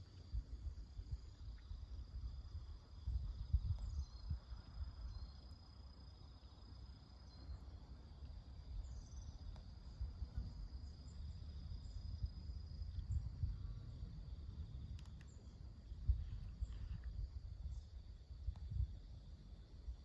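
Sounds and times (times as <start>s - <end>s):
insects droning: 0.0s - 20.0s
uneven low rumble: 9.8s - 20.0s.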